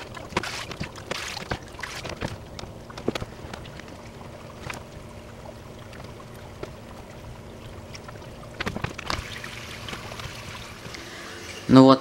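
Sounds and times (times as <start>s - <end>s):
aquarium filter humming: 0.0s - 12.0s
knocks and clatter at tank: 8.6s - 10.9s.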